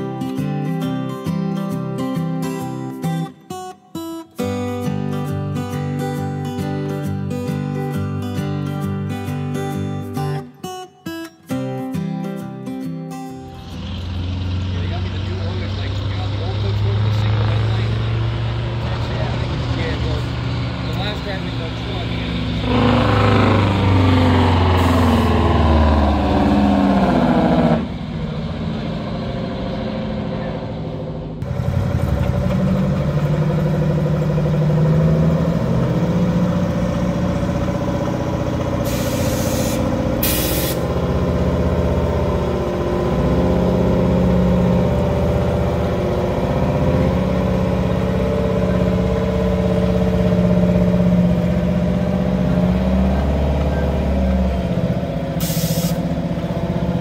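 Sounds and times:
diesel truck engine idling: 13.5s - 57.0s
air brake hiss: 38.8s - 40.8s, 55.4s - 56.1s.

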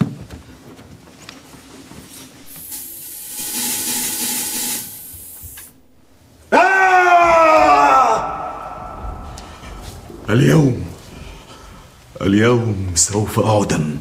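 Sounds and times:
fog machine hissing: 2.4s - 5.9s.

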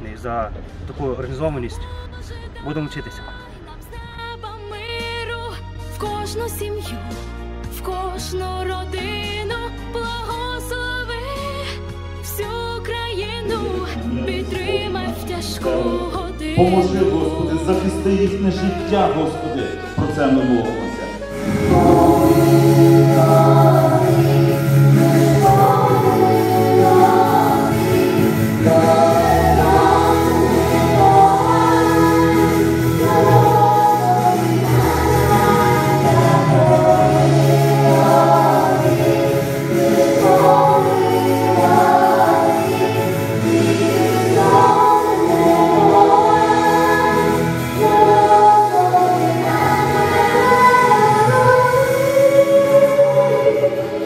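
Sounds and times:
girls singing together: 21.3s - 54.0s.

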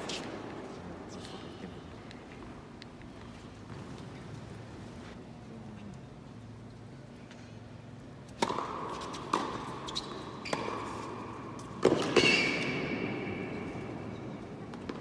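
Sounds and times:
racket hitting tennis ball: 8.3s - 15.0s.

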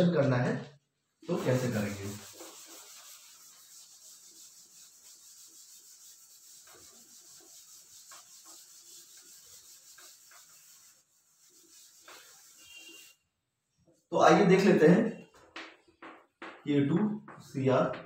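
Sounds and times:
eraser rubbing chalkboard: 1.2s - 13.2s.

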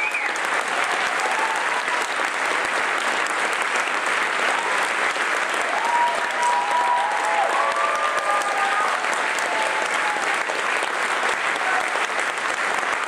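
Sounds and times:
crowd applauding: 0.0s - 13.0s.

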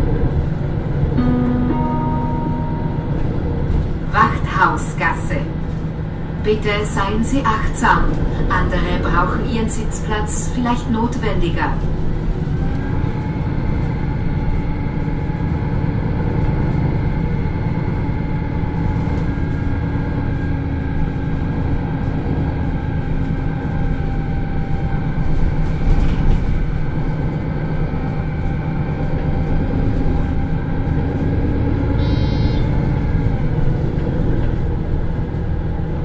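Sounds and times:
bus diesel engine running: 0.0s - 36.0s
road rumble: 0.0s - 36.0s
short high-pitched sound: 32.0s - 32.9s.

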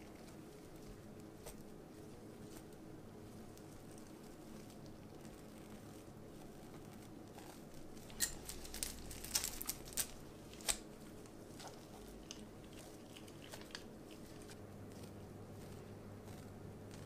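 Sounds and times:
chocolate flakes clicking and crinkling: 0.0s - 17.0s.

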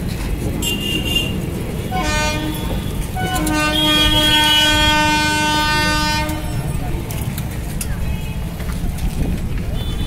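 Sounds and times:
passing train rumble: 0.0s - 10.0s
horn long blast: 1.9s - 6.7s.

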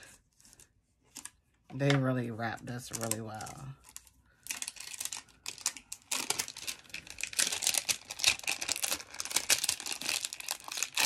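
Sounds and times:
plastic wrap crinkling: 2.7s - 11.0s.

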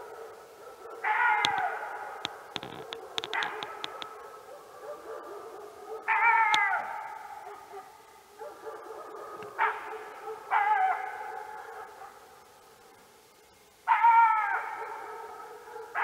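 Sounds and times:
dog howling: 0.9s - 5.2s, 5.9s - 7.6s
dog yelping: 5.9s - 6.8s.

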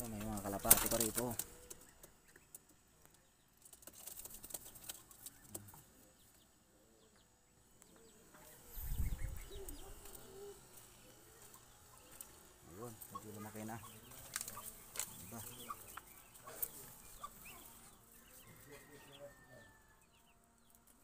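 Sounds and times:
pigeons rustling and clicking: 0.0s - 18.7s
faint low bird calls: 4.2s - 20.8s.

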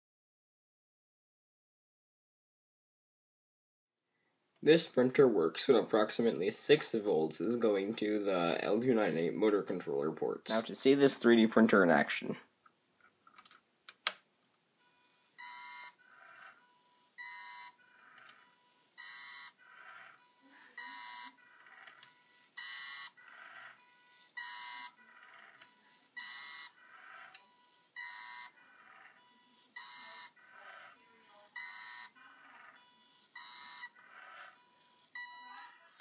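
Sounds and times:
small motors whining: 14.9s - 35.6s.

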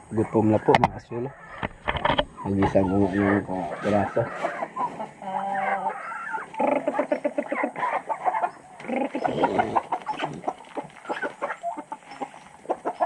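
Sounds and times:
chickens clucking and squawking: 0.0s - 13.0s.

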